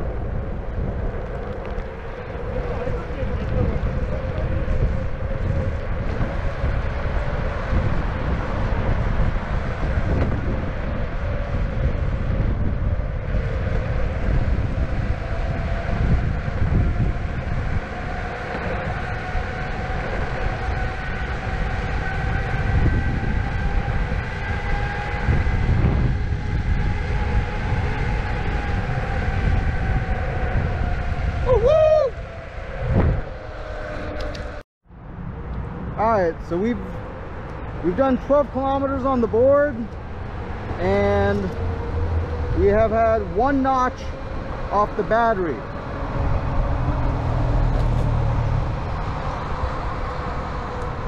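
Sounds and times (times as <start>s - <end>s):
electric motor whine: 0.0s - 31.6s, 38.8s - 51.0s
wheels rumbling on asphalt: 0.0s - 51.0s
wind on microphone: 0.0s - 51.0s.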